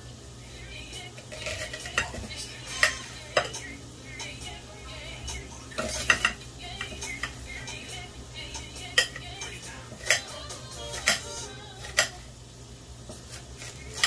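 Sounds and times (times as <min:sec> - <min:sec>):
spoon stirring in metal pot: 0:01.0 - 0:12.2.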